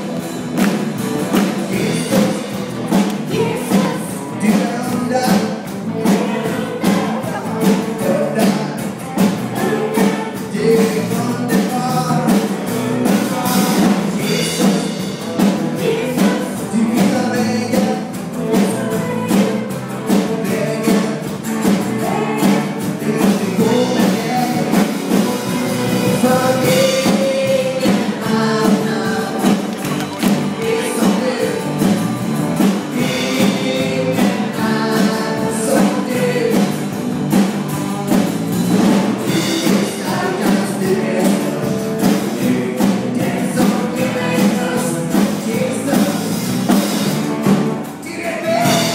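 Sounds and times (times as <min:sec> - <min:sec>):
acoustic and electric guitar: 0:00.0 - 0:48.9
drums steady beat: 0:00.0 - 0:48.9
keyboard: 0:00.0 - 0:48.9
woman singing: 0:03.3 - 0:05.4, 0:06.0 - 0:08.5, 0:09.5 - 0:11.4, 0:15.8 - 0:17.8, 0:18.5 - 0:19.8, 0:21.9 - 0:24.7.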